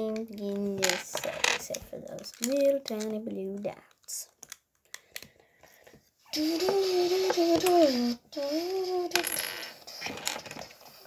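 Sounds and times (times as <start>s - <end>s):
plastic toy bricks clicking: 0.4s - 3.2s, 3.8s - 5.3s
child humming wordlessly: 6.3s - 9.4s.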